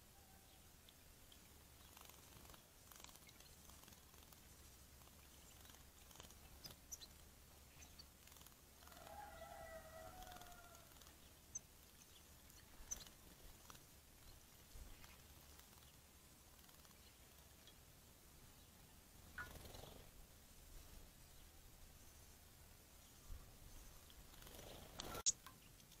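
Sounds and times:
soft ticks: 19.4 - 19.8, 24.0 - 26.0.

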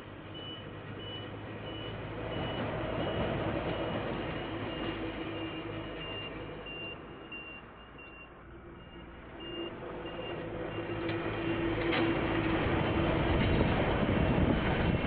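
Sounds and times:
train rumble and hum: 0.0 - 7.3, 8.5 - 15.0
high electronic beeps: 5.4 - 10.3.

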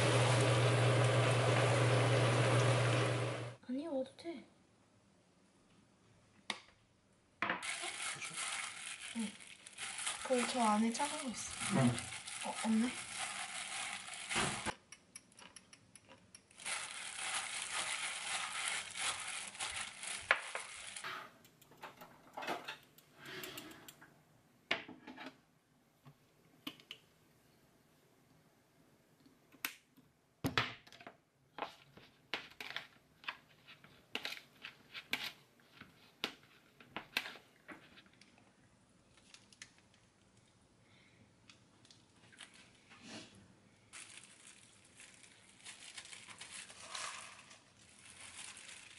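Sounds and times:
utensils clicking and tapping: 14.7 - 16.6.

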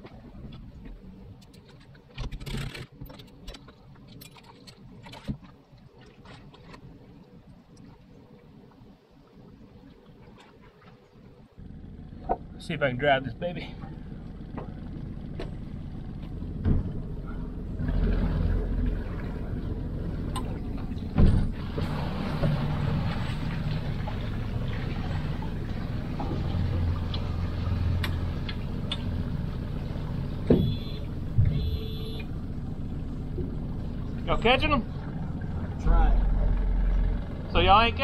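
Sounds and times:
outboard motor running: 0.0 - 38.0
sharp knocks on boat: 16.6 - 17.0, 20.3 - 22.7, 30.4 - 31.9.

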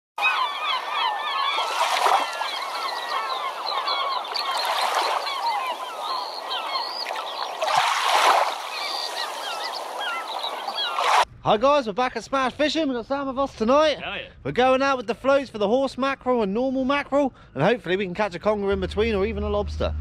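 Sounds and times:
chorus of squeaky animal calls: 0.2 - 7.6, 8.8 - 11.1.

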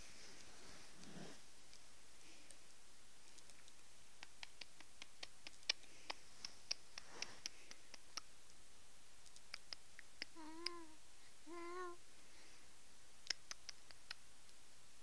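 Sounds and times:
faint light clicks and ticks: 0.4 - 8.6, 9.2 - 10.9, 13.2 - 14.6.

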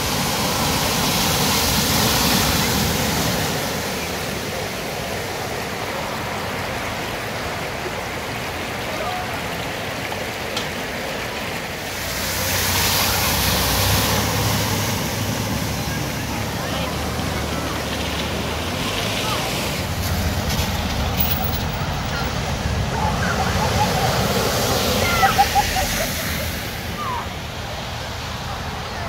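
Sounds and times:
floodwater rushing: 0.0 - 29.0
vehicle splashing through water: 0.0 - 29.0.

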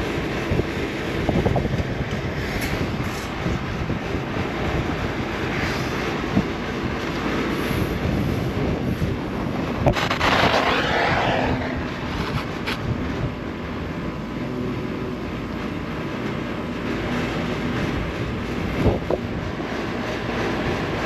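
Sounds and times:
wind rumble on microphone: 0.0 - 21.0
torch flame hissing: 7.4 - 13.1
torch igniting pop: 9.9 - 12.9.

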